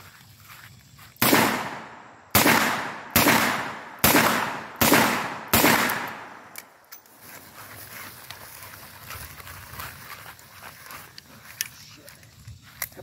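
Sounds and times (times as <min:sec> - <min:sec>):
revolver gunshots echoing: 0:01.2 - 0:06.6.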